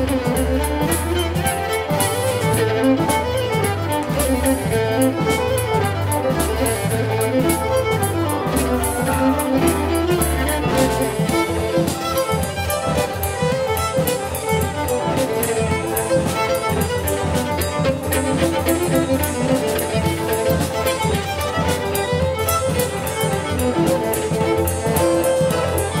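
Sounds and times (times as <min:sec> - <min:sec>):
sustained bass notes: 0:00.0 - 0:11.9
fiddle playing dance tune: 0:00.0 - 0:26.0
steady beat: 0:00.0 - 0:26.0.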